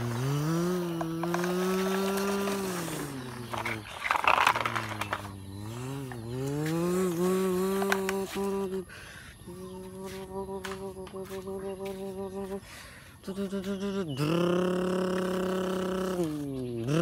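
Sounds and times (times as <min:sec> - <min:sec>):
person imitating truck engine: 0:00.0 - 0:17.0.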